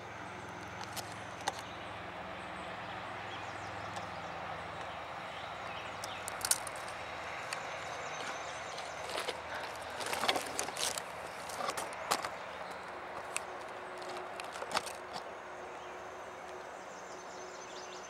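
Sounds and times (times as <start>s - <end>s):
short clicks and crunches: 6.0s - 15.3s.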